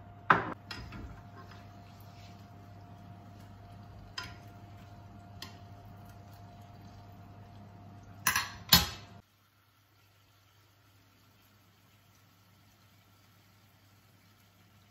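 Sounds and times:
faint steady hum: 0.0 - 14.9.

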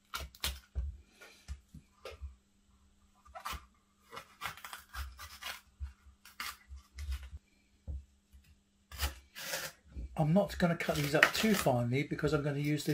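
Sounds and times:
knife cutting pepper: 3.3 - 7.3, 8.9 - 9.8.

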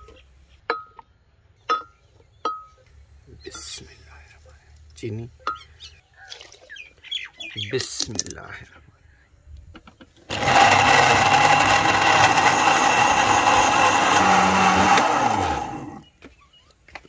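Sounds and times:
electric blender running: 10.3 - 16.0.

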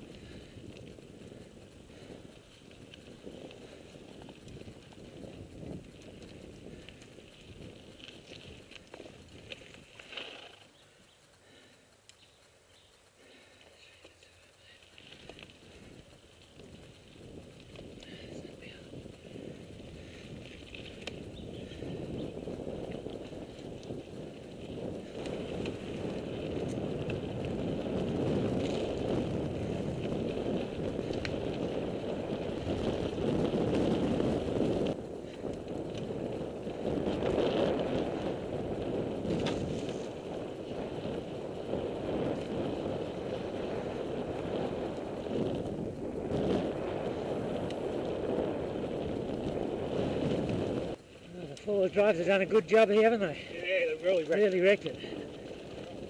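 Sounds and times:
bike tyres rumbling on dirt: 0.0 - 12.5, 13.1 - 56.0.

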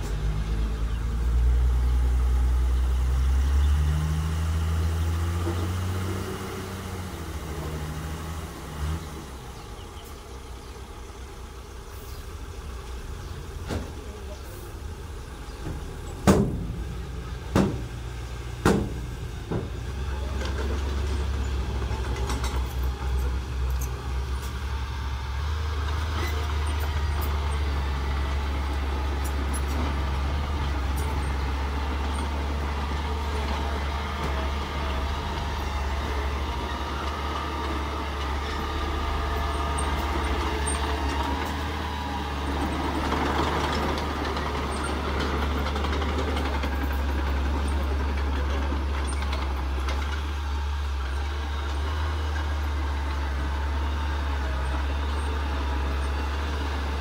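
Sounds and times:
heavy engines running: 0.0 - 57.0
truck bed banging: 15.6 - 22.7.

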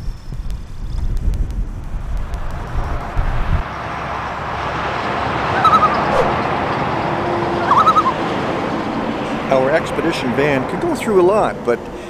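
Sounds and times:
steady rushing hiss: 0.0 - 3.7
bird chirping: 5.5 - 6.4, 7.6 - 8.2.

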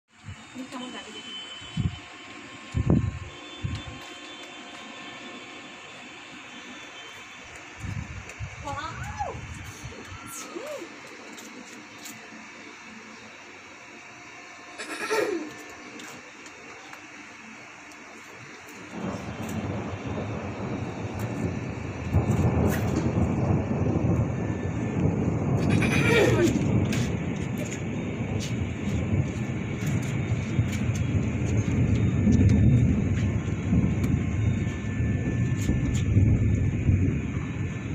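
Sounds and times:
outdoor background hiss: 0.1 - 37.9
distant thunder rumbling: 18.8 - 37.9.

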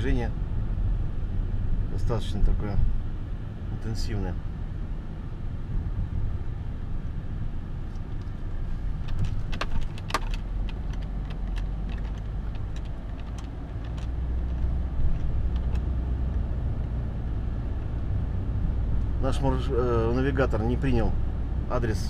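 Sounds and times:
engine and road rumble: 0.0 - 22.0
sharp clicks and rattles: 8.1 - 15.9.

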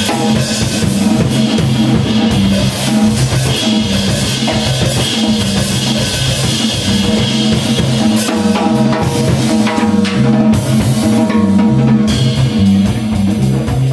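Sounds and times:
jazz drum kit with cymbals: 0.0 - 13.9
upright bass playing low notes: 0.0 - 13.9.

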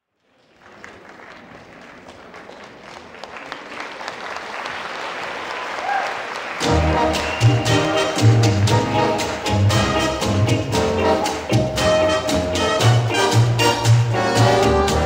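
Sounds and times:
audience applauding: 0.3 - 10.1.

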